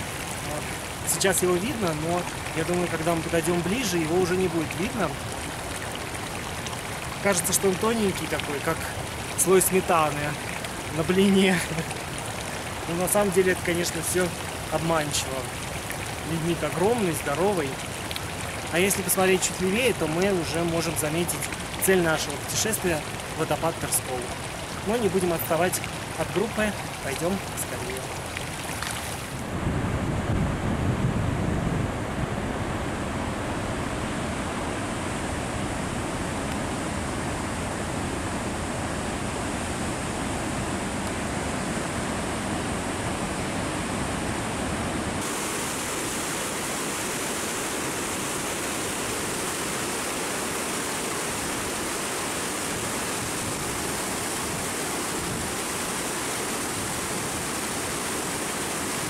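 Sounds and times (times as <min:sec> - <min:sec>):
running water: 0:00.0 - 0:29.5, 0:45.0 - 0:59.0
wind: 0:00.0 - 0:59.0.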